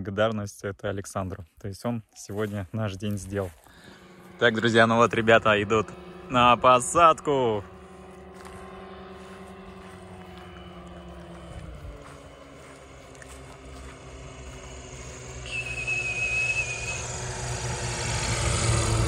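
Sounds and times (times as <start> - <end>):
light aircraft engines droning: 0.0 - 19.0
short high-pitched whistle: 15.4 - 17.4.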